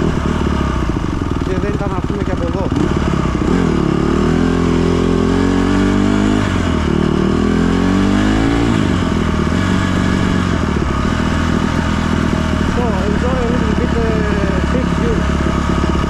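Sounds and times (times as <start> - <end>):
dirt bike engine revving: 0.0 - 16.0.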